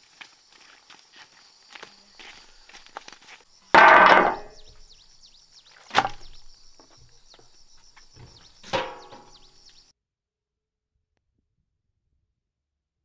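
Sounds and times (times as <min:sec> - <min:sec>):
birds chirping: 0:01.9 - 0:09.9
metal tray clanking on table: 0:03.8 - 0:04.6, 0:08.6 - 0:09.4.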